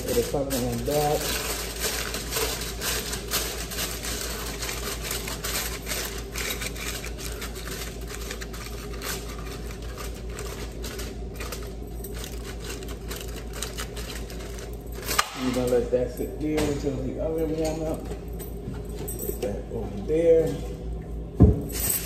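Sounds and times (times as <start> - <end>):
foil crinkling: 0.0 - 15.7.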